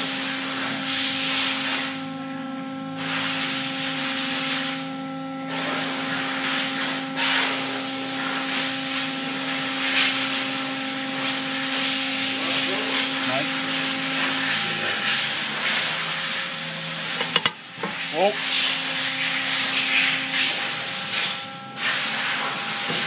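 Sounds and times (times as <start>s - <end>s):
hydraulic unit humming: 10.4s - 23.0s.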